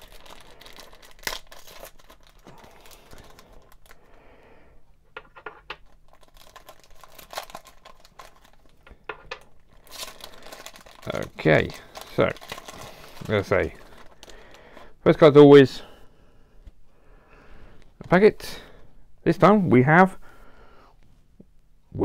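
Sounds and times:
foil wrapper tearing and crinkling: 0:00.0 - 0:04.0, 0:05.8 - 0:08.8, 0:09.6 - 0:14.6.

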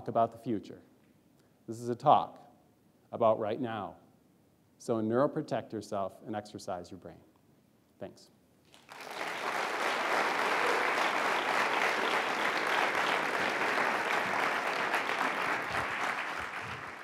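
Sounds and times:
audience applauding: 0:08.7 - 0:17.0.

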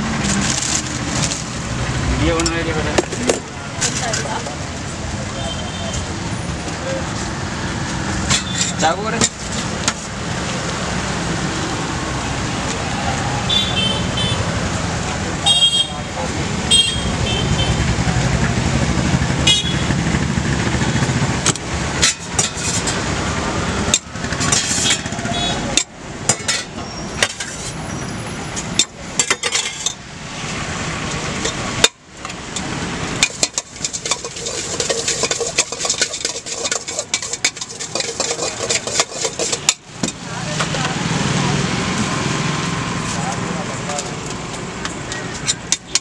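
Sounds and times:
street traffic: 0:00.0 - 0:46.0
utensils clinking on metal bowls: 0:00.1 - 0:01.6, 0:02.3 - 0:04.6, 0:08.2 - 0:10.1, 0:21.5 - 0:23.1, 0:23.9 - 0:27.8, 0:28.6 - 0:30.0, 0:32.5 - 0:40.3.

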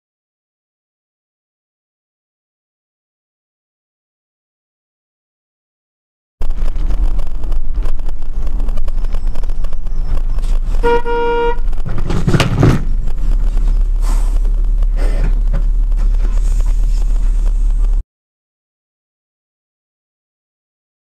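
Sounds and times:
road and engine rumble: 0:06.4 - 0:18.0
rough noisy burst: 0:06.4 - 0:18.0
car horn blast: 0:10.7 - 0:12.7.

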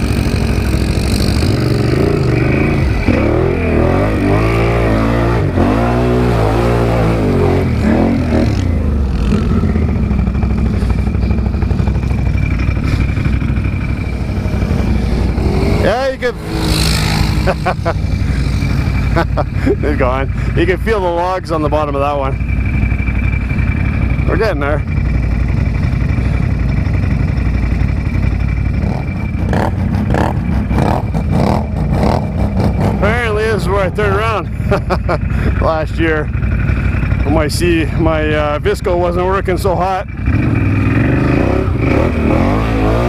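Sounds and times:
atv engine chugging: 0:00.0 - 0:43.0
steady high whine: 0:00.0 - 0:43.0.

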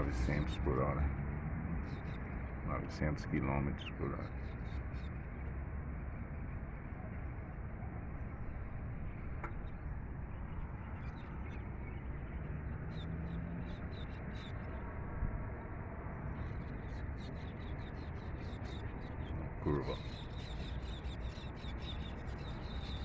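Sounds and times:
low outdoor background noise: 0:00.0 - 0:23.0
faint high bird chirps: 0:16.4 - 0:23.0.

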